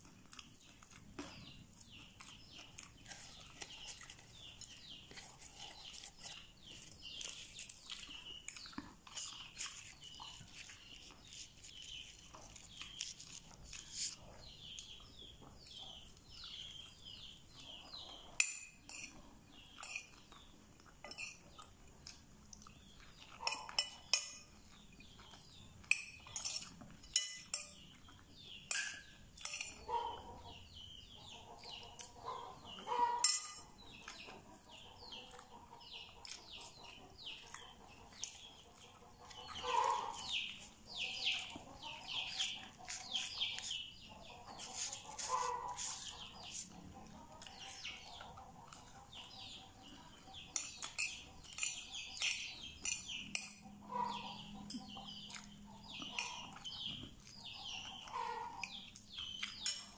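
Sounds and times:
chewing food: 0:00.0 - 0:59.9
metal spoon clinking on plate: 0:18.4 - 0:19.2, 0:19.8 - 0:20.2, 0:21.0 - 0:21.5, 0:23.4 - 0:24.6, 0:25.8 - 0:27.8, 0:28.7 - 0:29.8, 0:33.2 - 0:33.8, 0:50.6 - 0:53.6.

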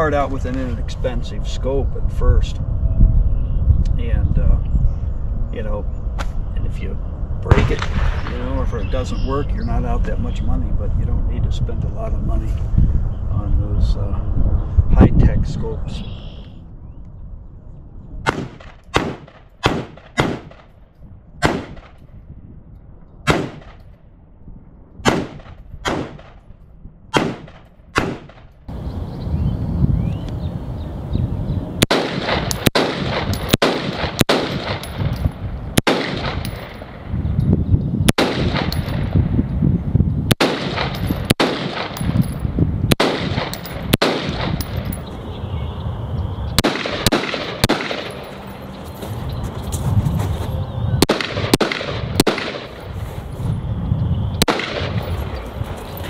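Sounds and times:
low rumble: 0:01.9 - 0:56.0
rifle shots: 0:07.5 - 0:08.6, 0:18.3 - 0:20.7, 0:21.4 - 0:22.0, 0:23.3 - 0:23.8, 0:25.0 - 0:26.4, 0:27.1 - 0:28.5, 0:31.8 - 0:37.1, 0:38.1 - 0:39.2, 0:40.3 - 0:45.0, 0:46.6 - 0:48.5, 0:51.0 - 0:52.9, 0:54.4 - 0:55.2.

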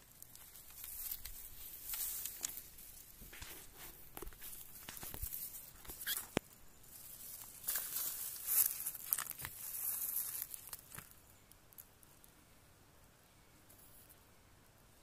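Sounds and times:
close rustling and crackling: 0:00.0 - 0:12.3.

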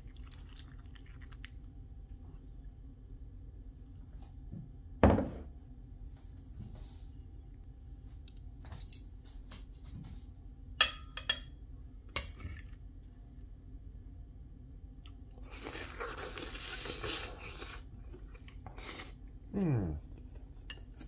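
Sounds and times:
cutlery clinking on plate: 0:10.8 - 0:11.6.

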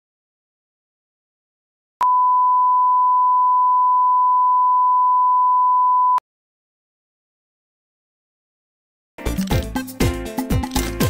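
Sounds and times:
steady sine reference tone: 0:02.0 - 0:06.2.

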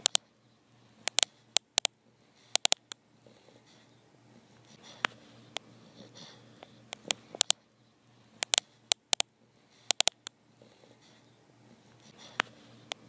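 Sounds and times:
sharp clicks: 0:00.0 - 0:00.2, 0:01.0 - 0:01.9, 0:02.5 - 0:03.0, 0:06.9 - 0:07.6, 0:08.4 - 0:09.3, 0:09.9 - 0:10.4
dog snoring and snuffling: 0:03.2 - 0:07.5, 0:10.5 - 0:13.0.

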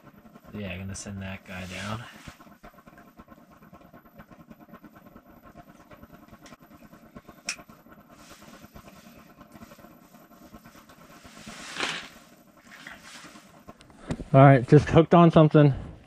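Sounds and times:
faint room hum and hiss: 0:00.0 - 0:16.0
rustling: 0:10.6 - 0:13.6.

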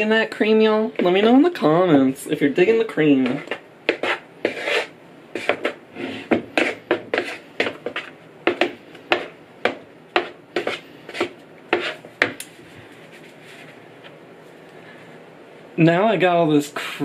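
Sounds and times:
wooden spatula scraping wooden bowl: 0:03.2 - 0:12.3.

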